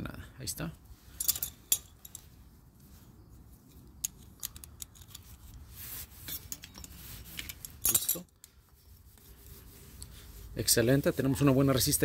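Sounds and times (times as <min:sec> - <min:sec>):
sharp metallic clicks and clinks: 0:01.2 - 0:02.3, 0:04.0 - 0:05.4.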